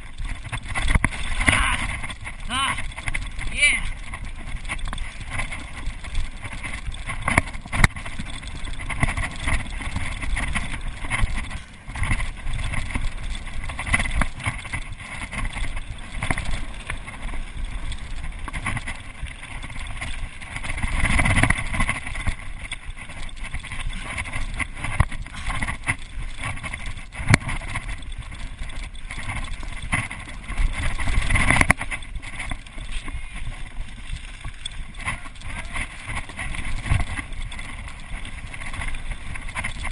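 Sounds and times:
bike knocks and rattles: 0.0 - 39.9
bike tyres rumbling over stones: 0.0 - 39.9
wind on microphone: 0.0 - 39.9.

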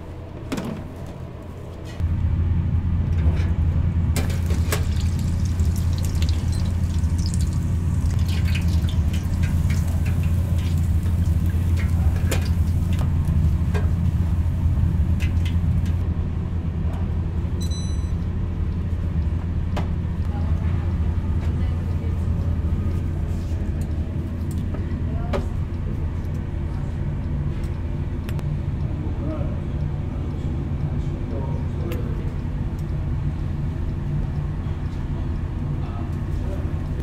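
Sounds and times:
steady low hum: 0.0 - 37.0
hot oil sizzling in deep fryer: 4.2 - 16.0
short electronic beep: 17.6 - 18.2.

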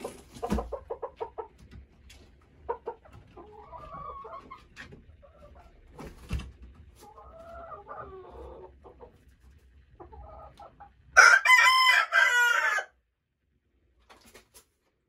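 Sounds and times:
chickens clucking softly: 0.0 - 11.2
rooster crowing: 11.2 - 13.0.

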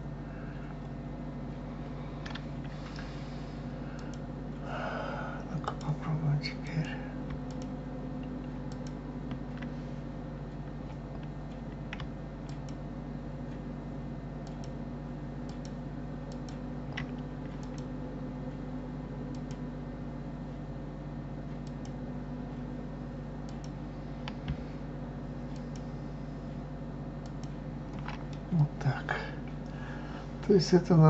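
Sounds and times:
steady low hum: 0.0 - 31.0
computer mouse clicks: 4.0 - 4.2, 6.8 - 9.7, 10.8 - 12.8, 14.4 - 14.8, 15.4 - 17.9, 19.3 - 19.6, 21.6 - 22.0, 23.4 - 24.6, 25.5 - 25.9, 27.2 - 28.4.

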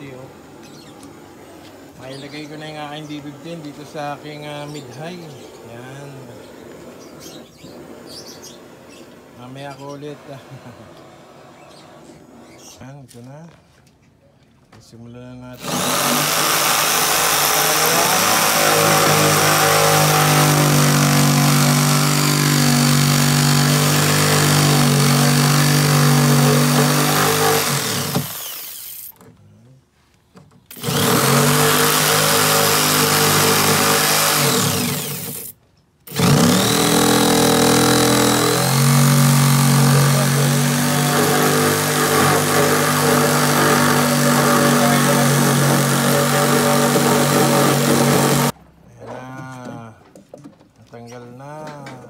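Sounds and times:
electric drill cutting wood: 15.6 - 29.1, 30.7 - 48.6.

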